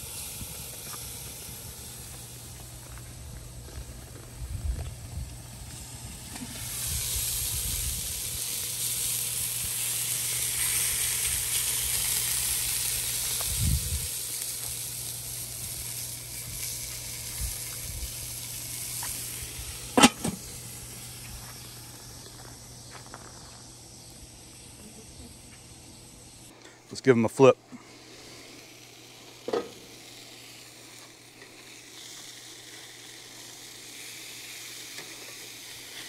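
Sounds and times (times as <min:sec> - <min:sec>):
burger patties sizzling on a grill: 0:00.0 - 0:36.0
grill lid metal clank: 0:19.9 - 0:20.6, 0:29.4 - 0:29.9.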